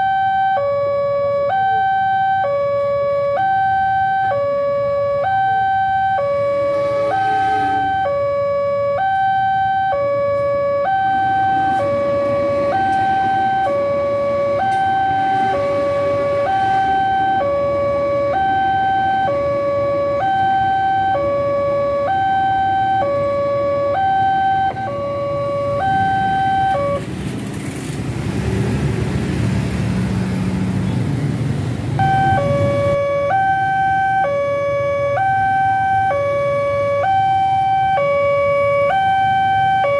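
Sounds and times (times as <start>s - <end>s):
level crossing alarm ding-dong: 0.0s - 27.0s, 32.0s - 39.9s
passing train rumble: 11.5s - 13.3s, 26.8s - 33.0s.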